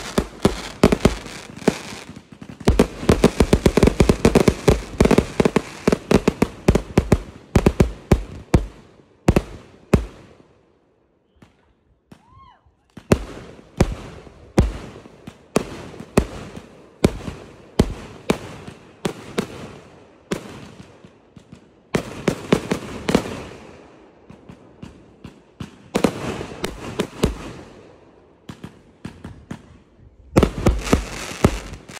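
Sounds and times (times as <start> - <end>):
fireworks bangs: 0.0 - 8.7, 30.4 - 31.9.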